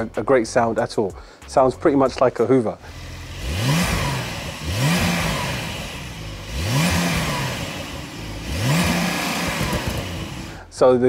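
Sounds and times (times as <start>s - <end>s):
car engine revving: 2.8s - 10.7s.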